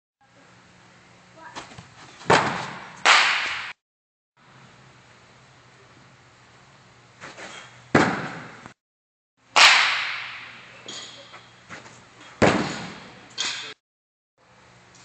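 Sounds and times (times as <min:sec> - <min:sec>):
baseballs smacking a net and wall: 0:01.5 - 0:03.8, 0:07.2 - 0:08.7, 0:09.6 - 0:13.8.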